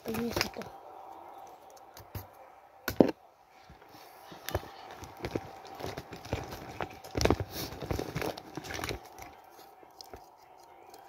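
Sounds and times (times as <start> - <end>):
objects knocking in cardboard box: 4.4 - 9.1.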